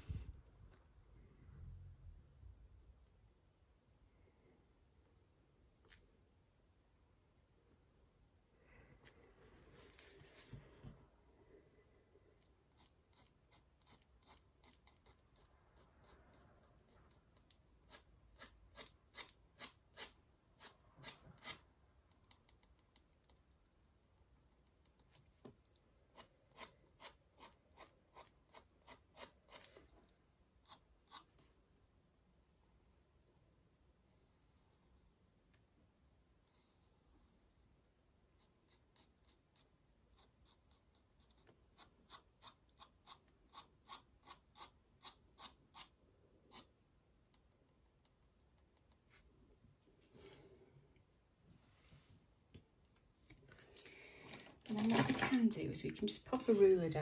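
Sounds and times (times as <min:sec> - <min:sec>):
ink pen scratching on paper: 0:12.7 - 0:17.2
pen scratching on paper: 0:12.7 - 0:17.2, 0:38.4 - 0:46.7.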